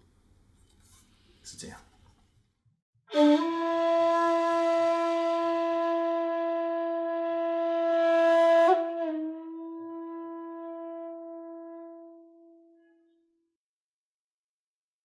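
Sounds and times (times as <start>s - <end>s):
end-blown flute long low note: 3.1s - 12.8s.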